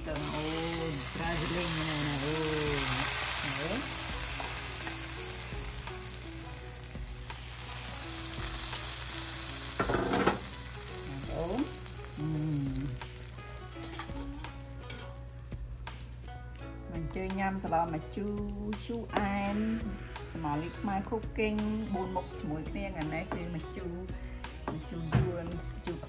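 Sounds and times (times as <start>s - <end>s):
food sizzling in a hot pan: 0.0s - 16.9s.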